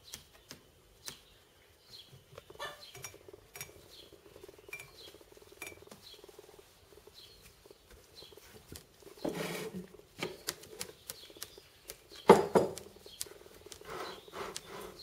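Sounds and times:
beak pecking taps and clicks: 2.3s - 6.4s, 10.2s - 14.7s.

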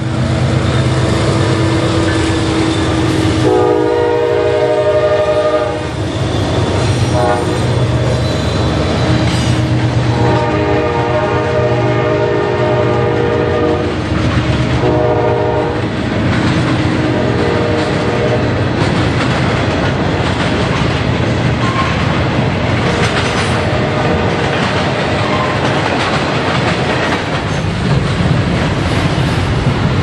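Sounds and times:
train wheels clacking on rails: 0.0s - 30.0s
distant train horn blasts: 0.4s - 14.1s, 14.8s - 16.0s, 16.9s - 18.6s, 23.5s - 24.4s.

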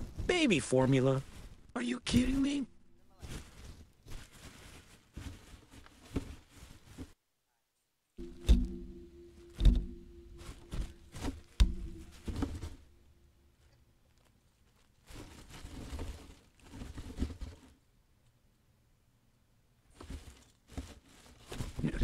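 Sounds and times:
plastic bags rustling: 0.0s - 7.2s, 8.2s - 17.8s, 19.9s - 22.0s
faint steady hum: 7.3s - 15.1s
rubbish knocking and clattering: 8.2s - 13.2s.

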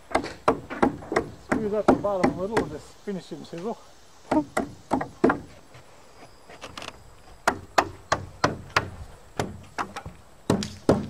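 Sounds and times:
hammer striking chisel into wood: 10.5s - 11.0s.

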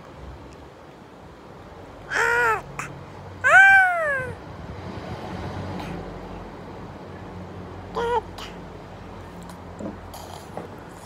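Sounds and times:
toddler squealing: 2.1s - 2.7s, 3.4s - 4.4s.

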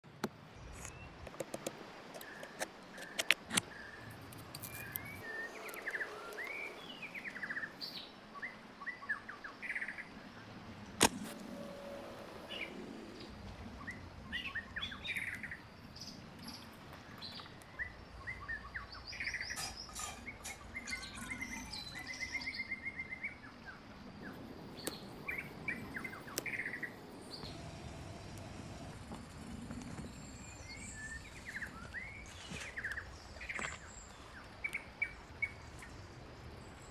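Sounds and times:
birds chirping and singing: 2.2s - 10.3s, 11.2s - 36.9s
sharp clicks or knocks: 11.0s - 11.5s.

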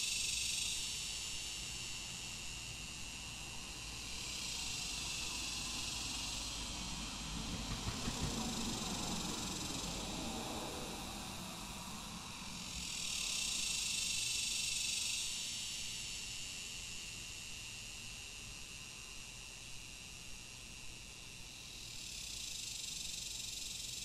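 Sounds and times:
cicadas droning: 0.0s - 24.0s
low rumble of passing vehicle: 5.2s - 13.7s.

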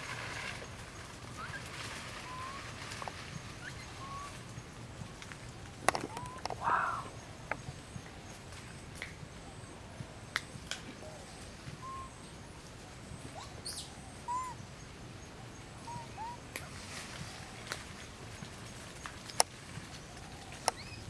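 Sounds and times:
faint chirping calls: 0.2s - 21.0s
light clicks and rustles: 4.3s - 6.6s, 16.5s - 21.0s.

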